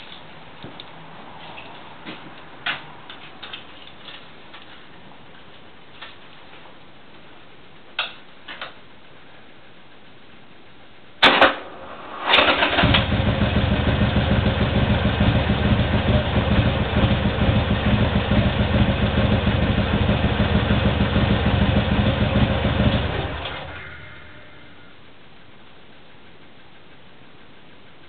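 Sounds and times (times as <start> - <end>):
motorcycle engine idling: 12.6 - 25.0.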